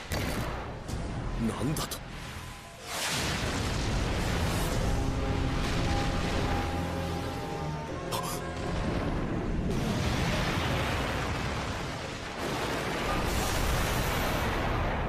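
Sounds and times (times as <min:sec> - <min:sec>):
dramatic background music: 0:00.0 - 0:15.0
impacts and crashing rubble: 0:02.3 - 0:15.0.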